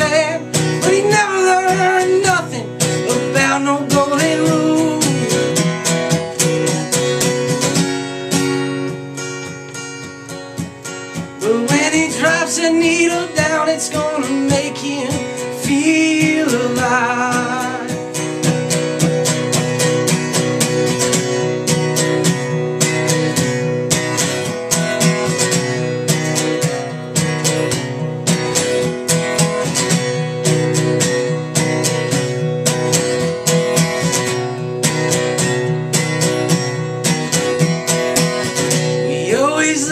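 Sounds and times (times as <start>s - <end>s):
man singing: 0.0s - 5.6s, 11.4s - 18.3s, 38.9s - 39.9s
acoustic guitar strumming: 0.0s - 39.9s.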